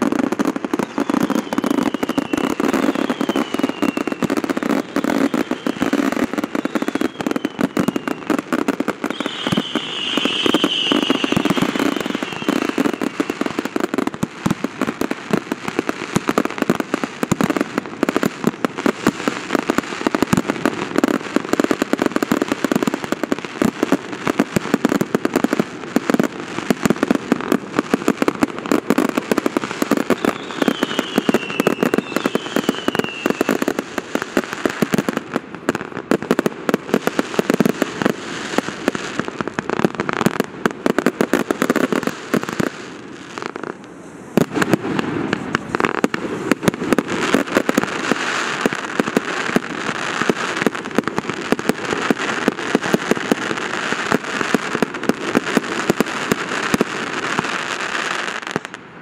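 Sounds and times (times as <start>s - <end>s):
falling firework whistles: 0.0s - 14.2s, 28.2s - 35.2s, 37.0s - 58.7s
fireworks crackling and banging: 0.0s - 59.0s.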